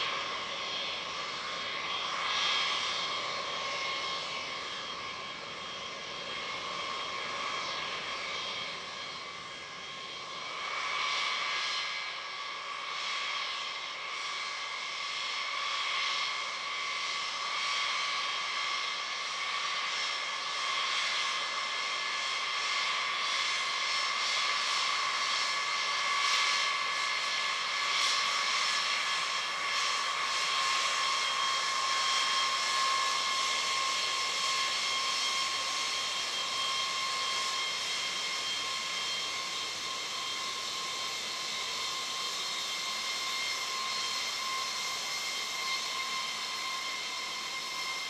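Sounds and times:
jet engines whining: 0:00.0 - 0:48.0.

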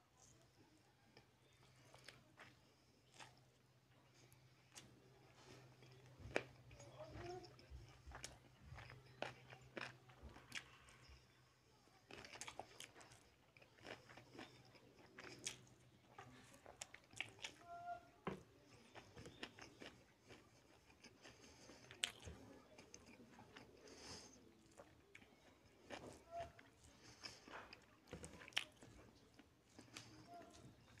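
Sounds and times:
wet chewing and lip smacks: 0:07.5 - 0:11.2, 0:12.1 - 0:17.6, 0:18.8 - 0:31.0.

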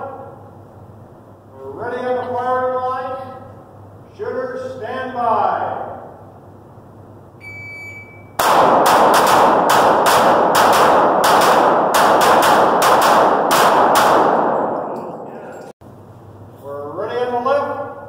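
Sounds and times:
pistols firing rapid shots: 0:08.4 - 0:15.0.

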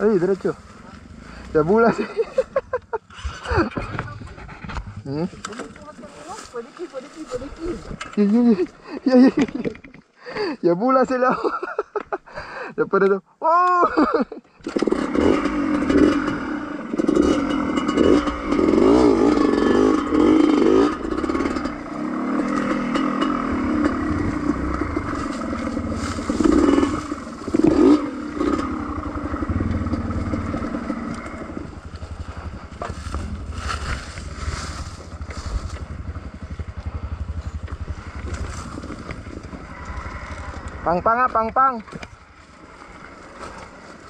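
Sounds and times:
dirt bike engine revving: 0:00.0 - 0:09.6, 0:14.6 - 0:44.0
bike clattering over rough ground: 0:02.8 - 0:10.1, 0:17.0 - 0:44.0.

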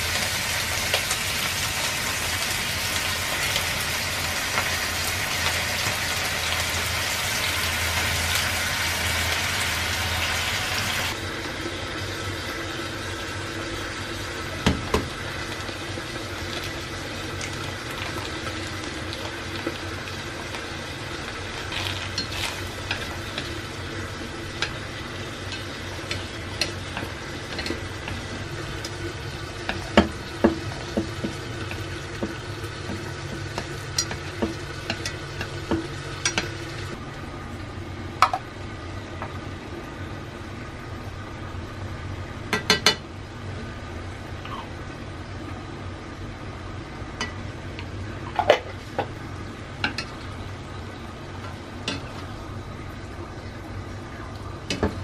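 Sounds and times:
light sizzling: 0:00.0 - 0:41.1.

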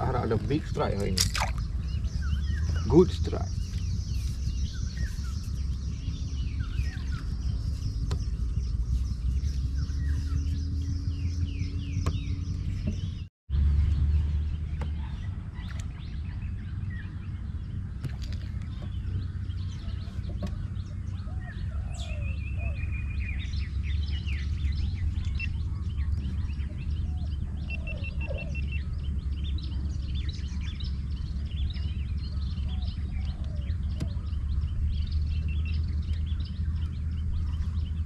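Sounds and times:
birds chirping and calling: 0:00.0 - 0:38.0
steady low rumble: 0:00.0 - 0:38.0
bird trills: 0:18.1 - 0:38.0.

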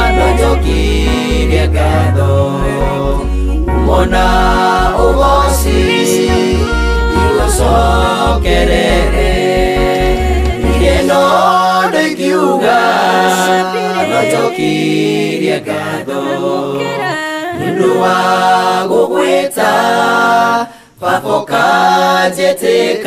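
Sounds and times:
low bass: 0:00.0 - 0:11.2
choir singing in harmony: 0:00.0 - 0:23.0.

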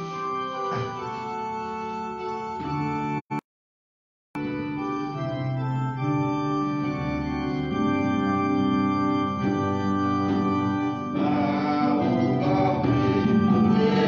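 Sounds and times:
organ playing sustained chords: 0:00.0 - 0:03.2, 0:04.4 - 0:14.0
choir singing: 0:11.1 - 0:14.0.

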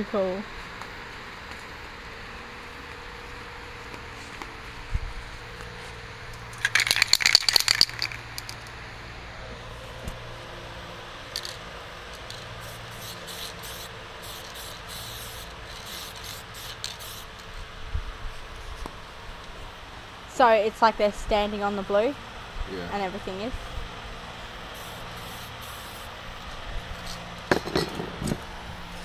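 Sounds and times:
spray can mixing ball rattling: 0:06.6 - 0:08.6, 0:11.4 - 0:11.6, 0:12.2 - 0:17.5
spray can hissing bursts: 0:12.2 - 0:17.5, 0:24.7 - 0:26.2.

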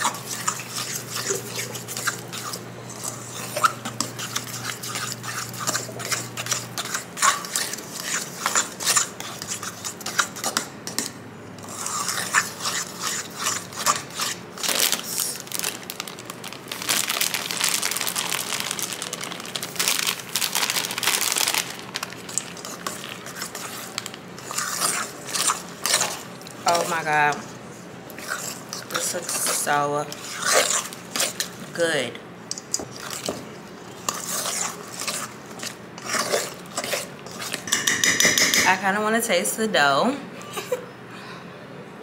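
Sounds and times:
utensil scraping metal bowl: 0:00.0 - 0:14.7, 0:22.5 - 0:27.6, 0:28.2 - 0:32.0, 0:32.7 - 0:38.8.

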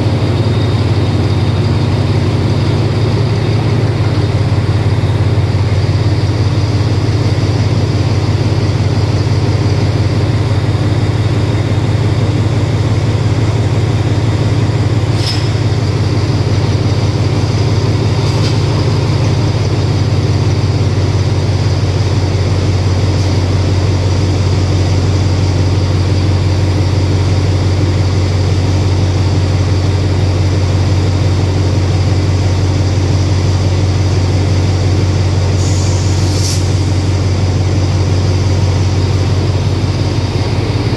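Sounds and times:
diesel locomotive idling: 0:00.0 - 0:40.9
short high hisses: 0:35.6 - 0:36.9.

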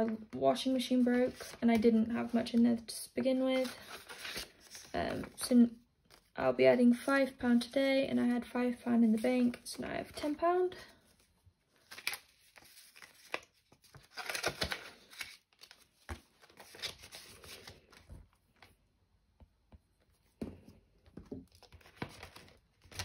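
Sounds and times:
banknotes and paper crinkling: 0:00.0 - 0:06.4, 0:09.1 - 0:18.8, 0:21.2 - 0:23.0.

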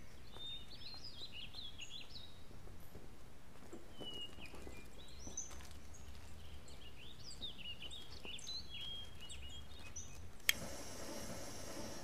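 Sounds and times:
small birds chirping: 0:00.0 - 0:02.6, 0:03.6 - 0:12.0.

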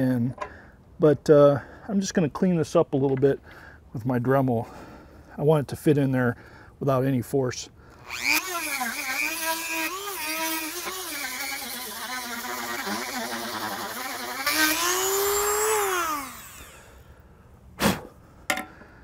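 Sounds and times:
rotary tool grinding steel: 0:08.0 - 0:17.0.

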